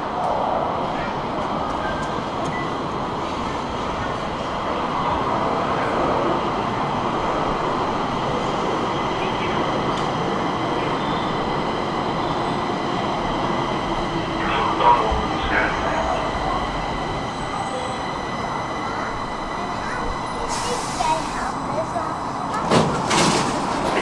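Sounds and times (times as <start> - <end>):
metro train rail rumble: 0.0 - 24.0.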